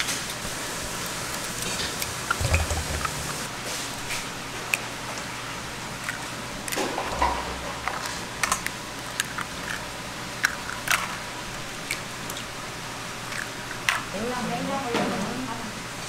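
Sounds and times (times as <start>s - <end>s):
steady kitchen hiss: 0.0s - 16.0s
eggshells cracking: 8.4s - 12.5s, 13.2s - 14.1s.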